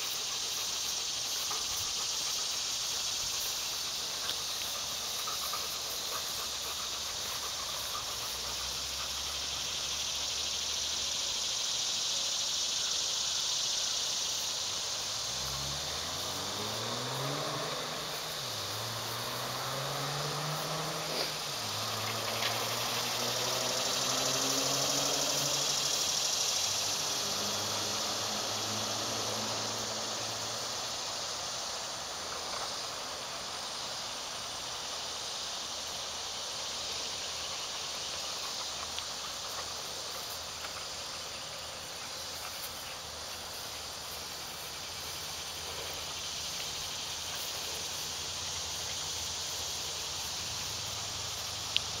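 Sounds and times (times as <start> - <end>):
insects chirring: 0.0 - 52.0
low engine-like hum: 14.5 - 35.4.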